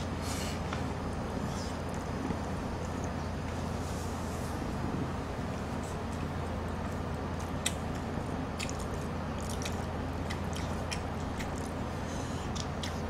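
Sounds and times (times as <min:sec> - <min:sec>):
steady low hum: 0:00.0 - 0:13.0
chewing and slurping: 0:05.6 - 0:13.0
wet mouth clicks and smacks: 0:07.4 - 0:11.8, 0:12.5 - 0:13.0.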